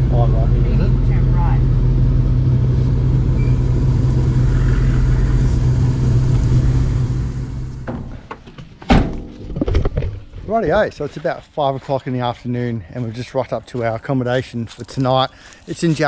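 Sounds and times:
car engine and tyres droning: 0.0s - 8.6s
loud knock: 7.8s - 9.4s.

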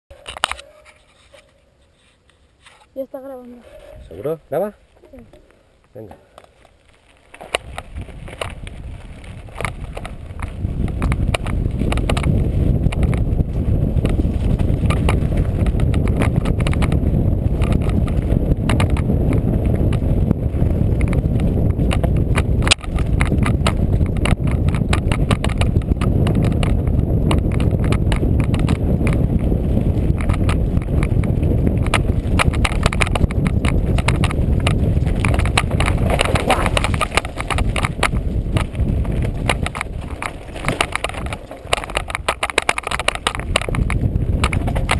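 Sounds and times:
bike rattling over stones: 4.1s - 44.9s
tyres rumbling on gravel: 4.1s - 44.9s.

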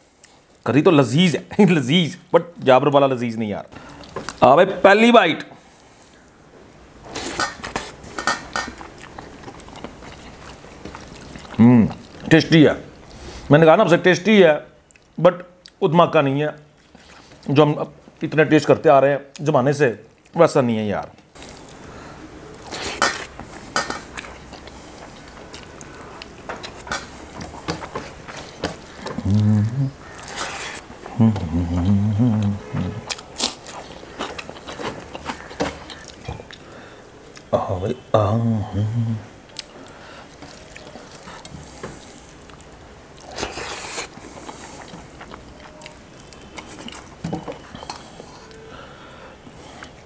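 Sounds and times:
person biting and chewing: 22.5s - 36.6s, 42.2s - 47.7s.

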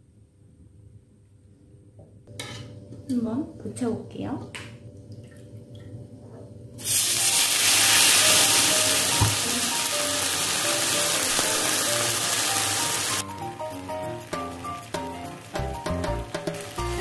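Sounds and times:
batter sizzling in hot oil: 6.8s - 17.0s.

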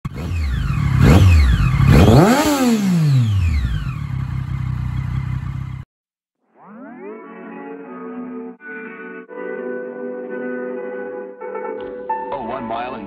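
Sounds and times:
motorcycle engine revving and idling: 0.0s - 5.9s.

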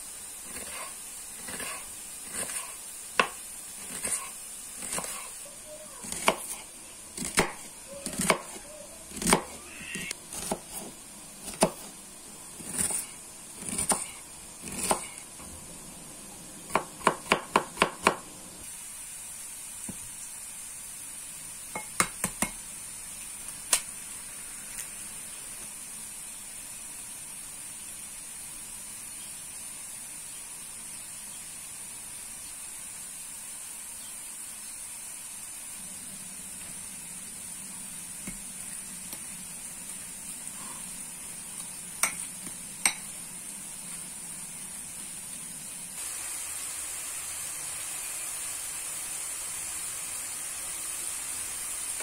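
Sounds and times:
faint hiss: 0.0s - 52.0s
knife chopping on cutting board: 0.5s - 5.3s, 6.0s - 6.6s, 7.2s - 9.6s, 10.3s - 11.9s, 12.6s - 15.2s, 16.7s - 18.2s.

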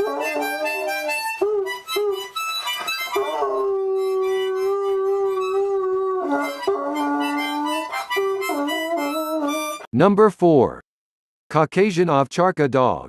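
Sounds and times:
dog howling: 0.0s - 2.3s, 3.1s - 9.8s
harmonica blowing: 0.0s - 9.9s.

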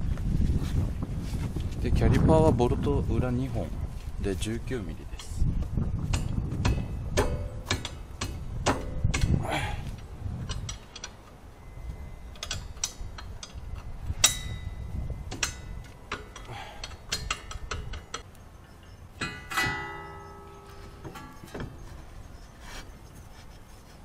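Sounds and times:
tools clinking: 10.0s - 22.3s
metal clink ringing: 10.7s - 18.2s, 18.8s - 21.6s
ratchet wrench clicking: 15.3s - 18.2s.

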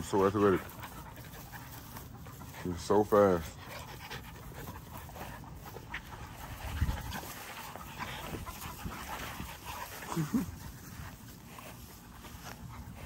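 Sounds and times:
puppies scuffling on grass: 0.0s - 13.0s.

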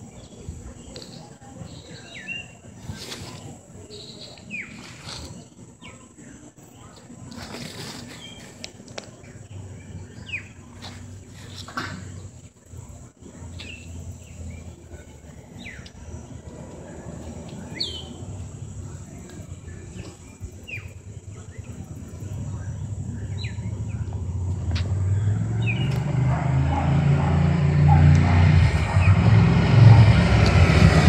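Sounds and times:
short chirping calls: 0.0s - 6.1s, 17.5s - 18.3s
low engine rumble: 0.0s - 31.0s.

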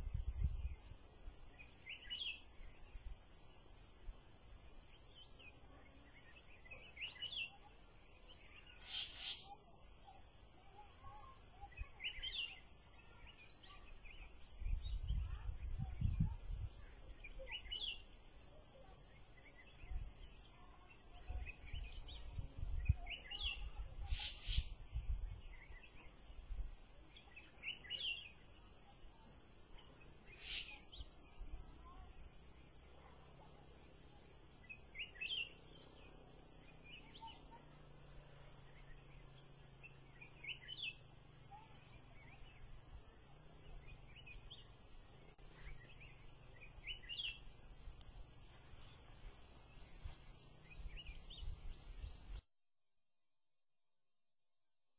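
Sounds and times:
insects trilling: 0.0s - 52.4s
small animal chirp: 8.7s - 9.6s, 23.1s - 24.8s, 30.3s - 30.9s.

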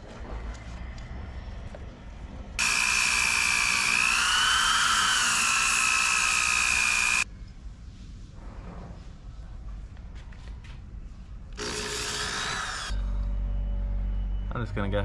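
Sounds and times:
angle grinder grinding: 2.6s - 7.2s.

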